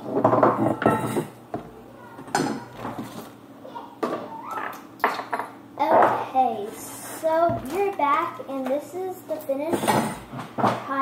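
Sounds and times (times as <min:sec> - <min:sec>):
girl talking: 0:01.7 - 0:02.9, 0:05.8 - 0:11.0.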